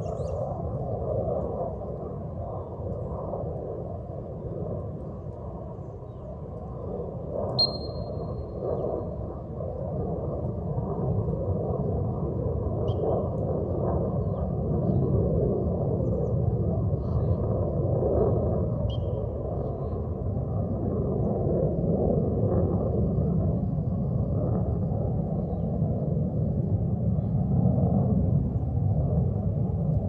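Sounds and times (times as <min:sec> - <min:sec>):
wind rumbling on microphone: 0:00.0 - 0:30.0
shrill whistle blast: 0:07.6 - 0:08.2
faint high chirps: 0:07.6 - 0:08.4.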